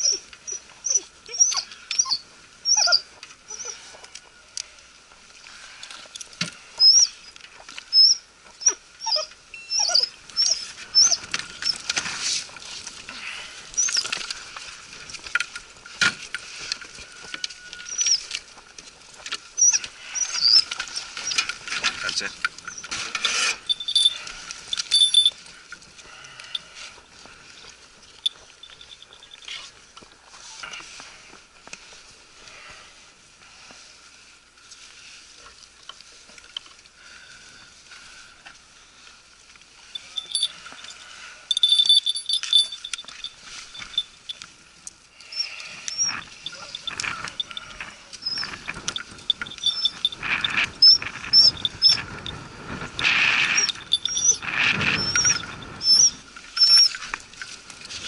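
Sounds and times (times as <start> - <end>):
dogs squealing and whining: 0.0 - 3.9, 6.8 - 11.9, 13.8 - 14.2, 17.7 - 18.3, 19.6 - 21.5, 22.7 - 24.2, 45.3 - 52.2, 53.0 - 57.0.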